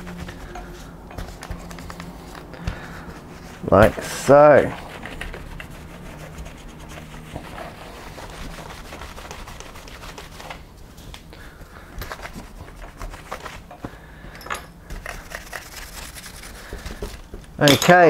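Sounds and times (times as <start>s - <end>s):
paintbrush sweeping: 0.0s - 11.0s, 15.2s - 16.8s
cloth rag rubbing: 0.0s - 11.1s, 12.1s - 13.7s, 15.2s - 16.8s.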